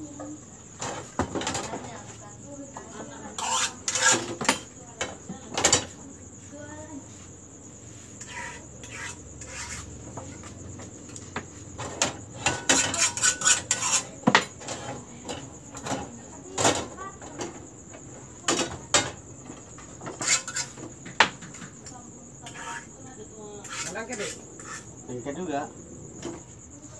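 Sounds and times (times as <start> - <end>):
metal pans clinking and scraping: 3.4 - 5.9, 11.8 - 17.5, 20.0 - 21.7.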